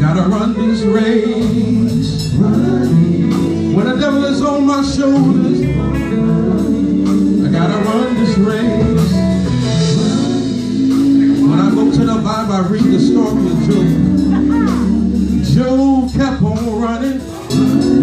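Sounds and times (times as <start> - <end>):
instrumental backing: 0.0 - 18.0
lead singer on microphone: 0.0 - 18.0
male gospel group singing: 0.0 - 18.0.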